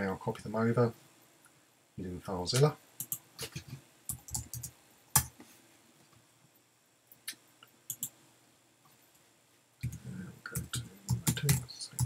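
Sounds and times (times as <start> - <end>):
keyboard typing: 2.6 - 5.3, 7.9 - 8.2, 9.8 - 12.0.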